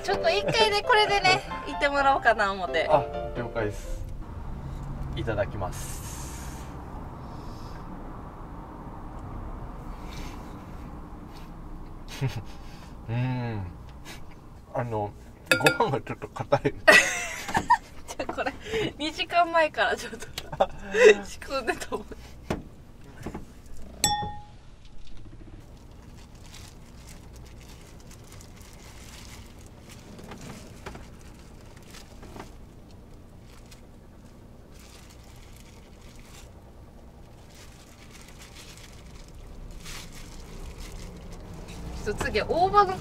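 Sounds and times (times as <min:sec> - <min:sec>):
short ringing clink: 0:15.5 - 0:15.9, 0:24.0 - 0:24.6
low steady hum: 0:23.6 - 0:43.0.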